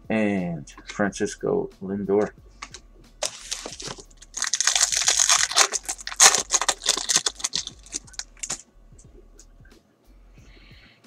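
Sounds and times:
foil wrapper crinkling and tearing: 3.2 - 8.6.

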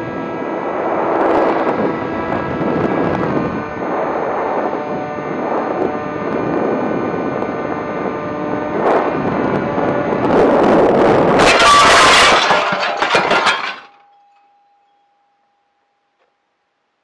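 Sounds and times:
model plane motor and propeller: 0.0 - 11.3
wind rushing over microphone: 0.0 - 12.5.

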